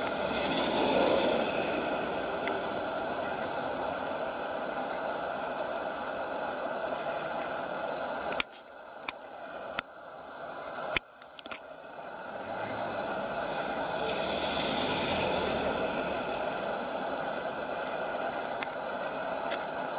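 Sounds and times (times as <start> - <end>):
vehicle passing: 0.0 - 5.0, 12.2 - 17.7
steady traffic noise: 0.0 - 19.9.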